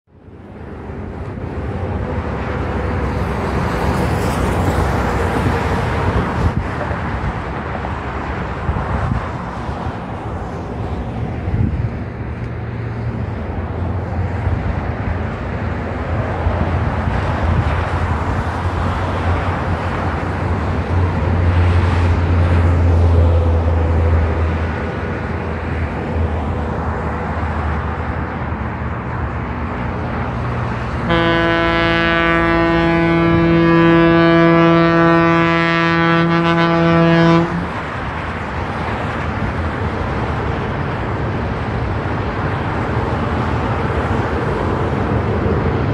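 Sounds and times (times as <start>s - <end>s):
train rumbling: 0.1s - 45.9s
train horn chord: 31.0s - 37.8s.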